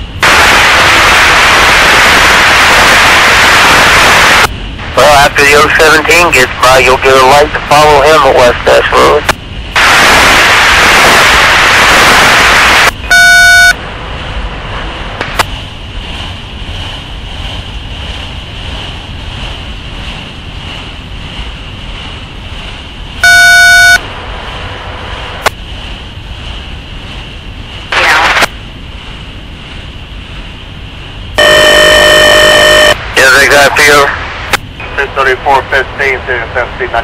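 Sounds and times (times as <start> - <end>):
radio static hiss: 0.2 - 13.8, 23.2 - 25.6, 27.9 - 28.6, 31.4 - 37.0
short electronic beep: 13.0 - 13.8, 23.2 - 24.0.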